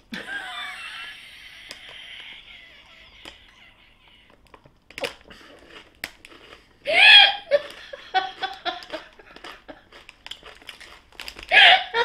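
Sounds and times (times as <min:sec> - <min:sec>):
woman laughing: 0:00.1 - 0:04.4, 0:06.9 - 0:09.8, 0:11.5 - 0:12.0
crisp packet crinkling: 0:01.3 - 0:06.8, 0:07.5 - 0:11.5.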